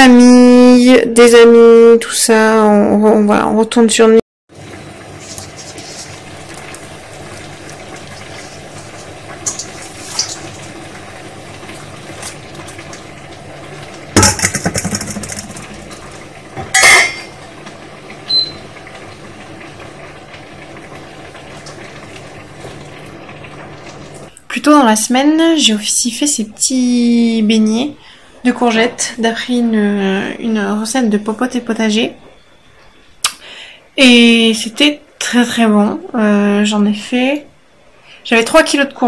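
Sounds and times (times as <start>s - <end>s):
loud metal clatters: 14.2s - 15.9s
pot lid clinking on metal pot: 16.6s - 17.3s.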